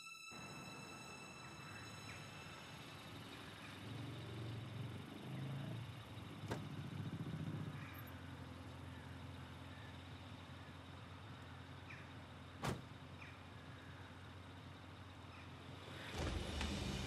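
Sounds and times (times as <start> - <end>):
car door shutting: 6.4 - 6.8, 12.6 - 12.9.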